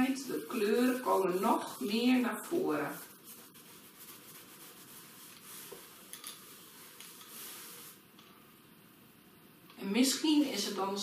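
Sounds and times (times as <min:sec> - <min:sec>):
soft cloth rubbing on card: 0:00.2 - 0:08.0.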